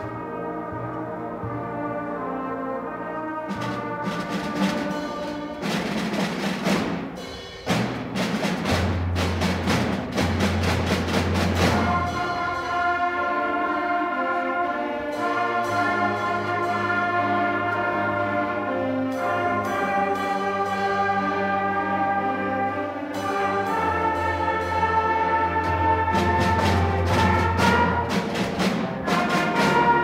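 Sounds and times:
low brass: 0.0s - 5.9s, 11.5s - 30.0s
concert band playing chords: 0.0s - 30.0s.

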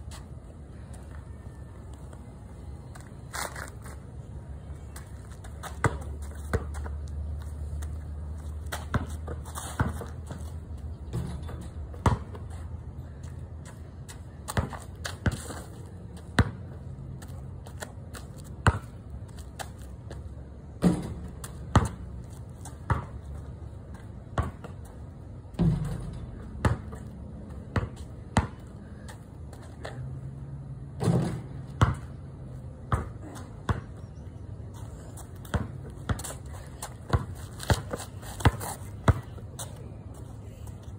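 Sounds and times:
steady low hum: 0.0s - 40.9s
basketball bouncing on concrete: 5.6s - 7.1s, 7.7s - 12.5s, 16.4s - 19.0s, 20.8s - 24.8s, 25.5s - 29.2s, 31.0s - 32.2s, 32.9s - 34.1s, 35.4s - 39.8s.

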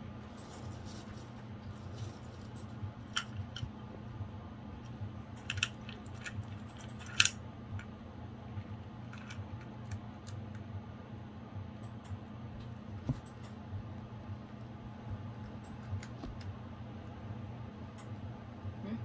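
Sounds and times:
low hum: 0.0s - 19.0s
hamster rustling in paper bedding: 0.2s - 3.6s
small clicks and crackles: 4.8s - 7.9s.

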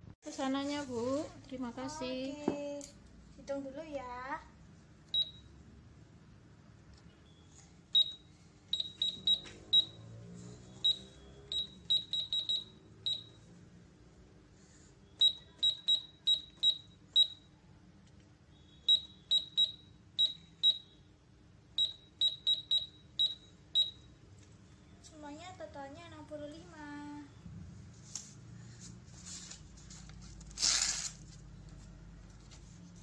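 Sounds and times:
toy cash register beeping: 7.3s - 10.0s.

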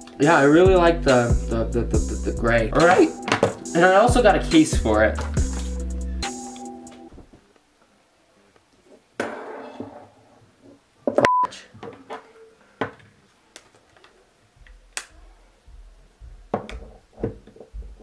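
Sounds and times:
short steady beep: 11.3s - 11.5s.

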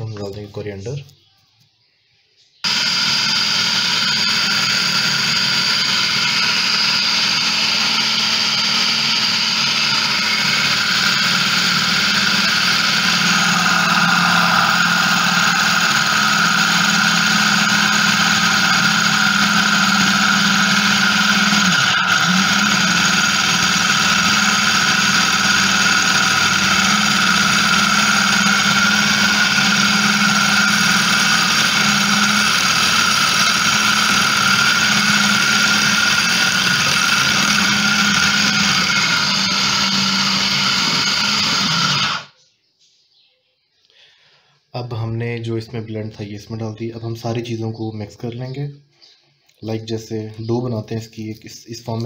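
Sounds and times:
food processor motor whining: 2.6s - 42.3s.

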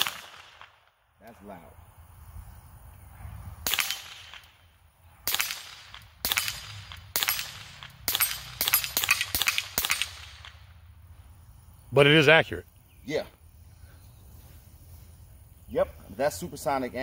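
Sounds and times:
suppressed pistol shots cracking: 0.0s - 0.9s, 3.6s - 4.6s, 5.3s - 10.7s.

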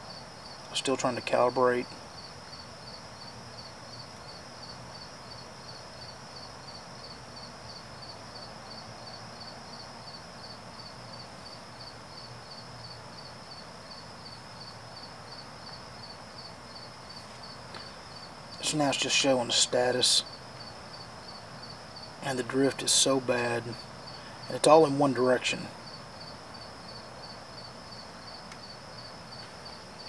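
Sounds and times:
crickets chirping: 0.0s - 30.0s
faint hiss: 0.0s - 30.0s.

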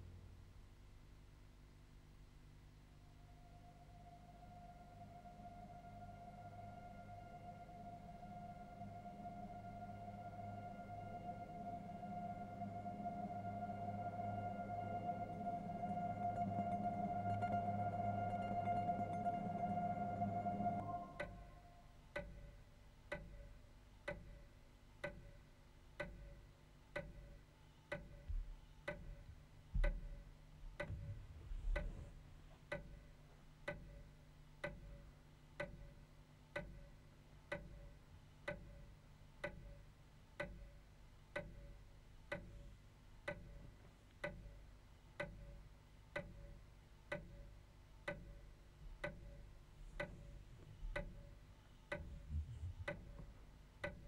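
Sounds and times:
faint low rumble: 0.0s - 22.8s, 27.5s - 34.0s, 48.4s - 53.9s
steady ticking: 4.6s - 54.0s
dull low thumps: 28.2s - 32.9s, 51.9s - 53.5s.

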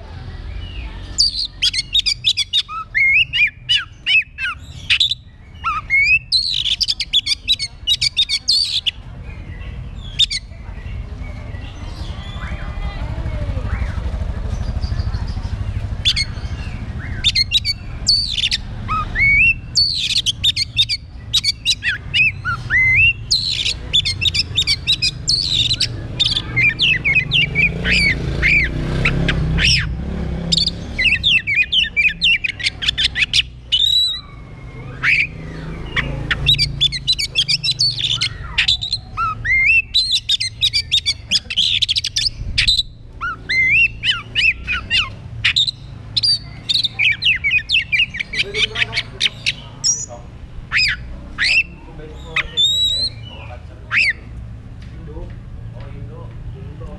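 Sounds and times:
bird singing whistles and chirps: 13.6s - 54.2s.

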